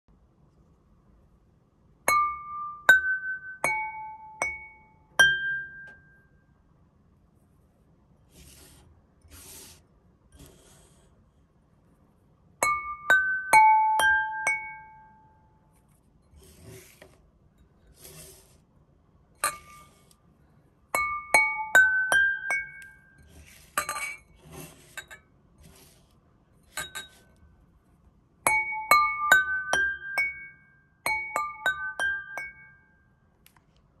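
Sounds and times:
glasses struck with mallet ringing: 2.1s - 6.3s, 12.6s - 15.4s, 21.0s - 23.2s, 28.5s - 33.0s
glasses clinking and scraping: 16.2s - 18.6s, 19.4s - 20.2s, 21.0s - 26.0s, 26.6s - 27.4s, 28.5s - 32.8s.

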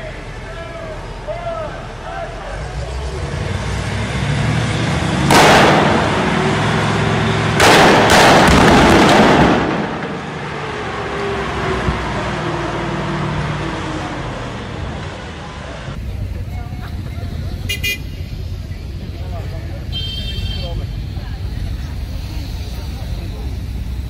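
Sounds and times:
explosion blasts with sharp cracks: 5.2s - 10.4s.

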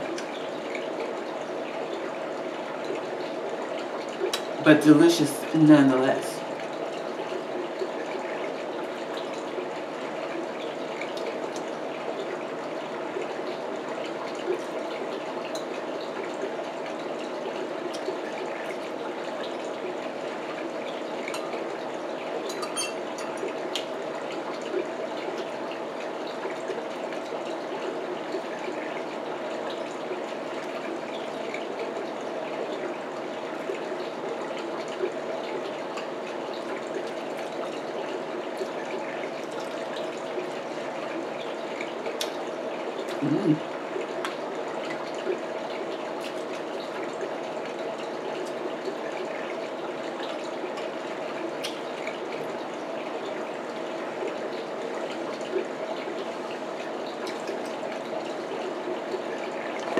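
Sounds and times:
fork clinking on glass dishes: 22.5s - 23.4s.

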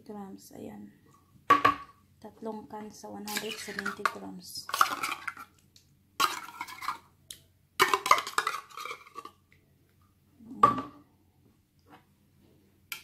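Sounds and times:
metal spoon scraping container: 3.2s - 5.5s, 6.2s - 7.0s, 7.8s - 9.4s.

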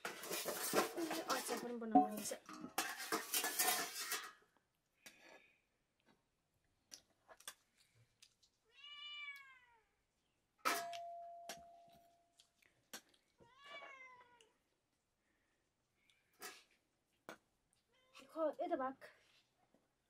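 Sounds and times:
cat meowing: 8.7s - 9.9s, 13.4s - 14.5s.

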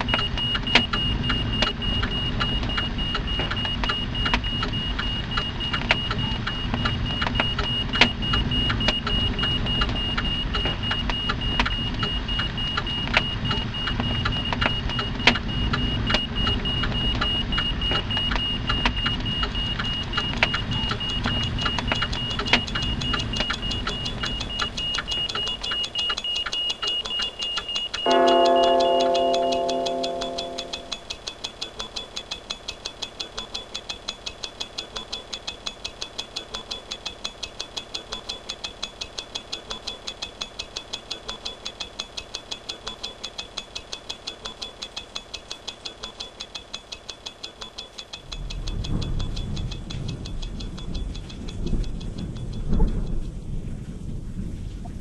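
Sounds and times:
steady high whine: 28.0s - 31.2s
low rumble: 48.4s - 55.0s.

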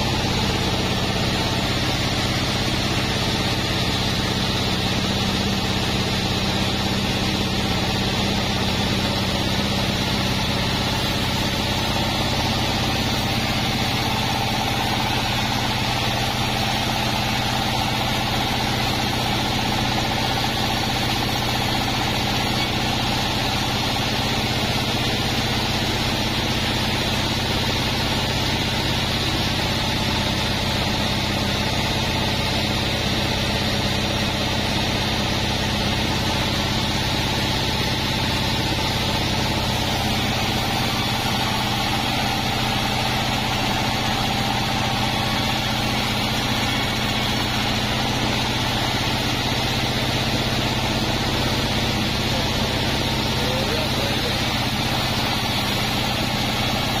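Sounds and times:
band sawmill humming: 0.0s - 57.0s
saw blade cutting log: 50.8s - 57.0s.

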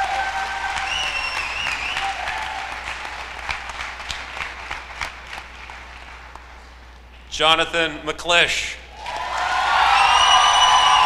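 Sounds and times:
drawn-out cheers: 0.0s - 2.9s, 9.0s - 11.0s
audience applauding: 0.0s - 6.6s, 9.0s - 11.0s.

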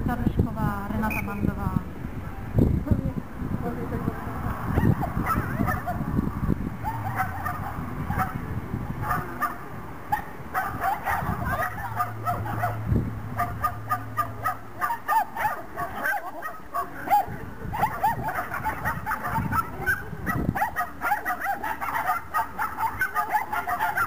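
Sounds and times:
dog barking in high yips: 4.8s - 6.1s, 6.8s - 8.4s, 9.0s - 12.8s, 13.4s - 24.0s.

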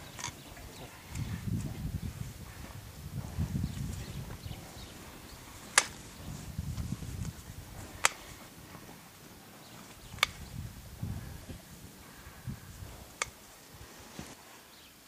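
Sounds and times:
hoof nippers snapping: 5.3s - 8.5s, 9.8s - 10.6s, 13.1s - 13.4s.

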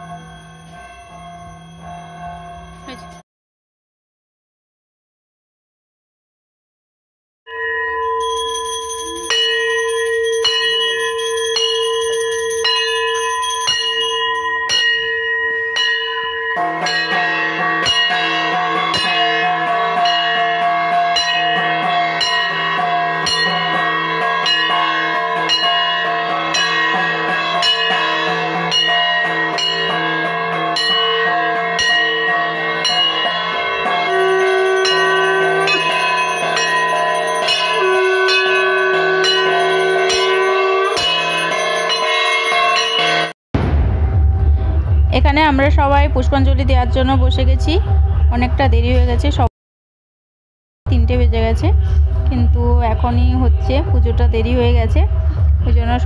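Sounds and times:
ringing metal bells: 0.0s - 3.2s, 7.5s - 43.4s
conch shell notes: 16.4s - 43.3s
brass gong struck: 43.6s - 48.3s.

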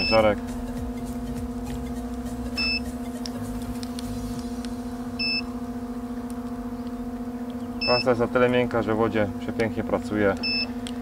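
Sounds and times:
two-tone electronic beep: 0.0s - 0.4s, 2.5s - 3.1s, 5.2s - 5.5s, 7.8s - 8.1s, 10.4s - 10.7s
electrical hum: 0.0s - 11.0s.

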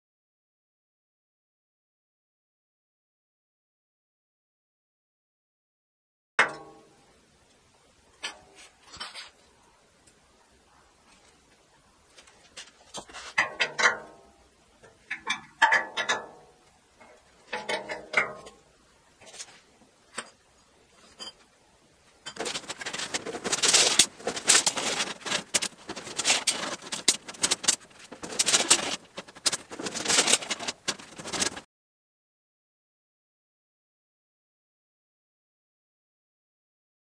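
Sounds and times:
steel rods clattering and scraping: 8.2s - 9.4s, 12.1s - 18.6s, 19.2s - 21.5s, 22.2s - 31.6s.

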